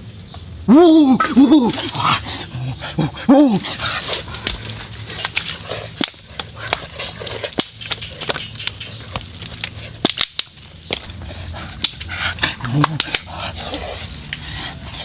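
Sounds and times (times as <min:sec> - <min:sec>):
wood knocking on wood and stone: 0:07.5 - 0:11.2.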